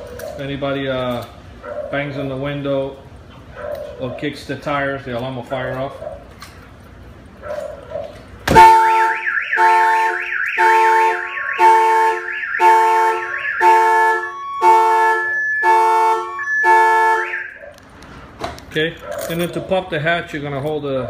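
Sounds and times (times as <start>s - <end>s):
car alarm siren: 8.5s - 17.8s.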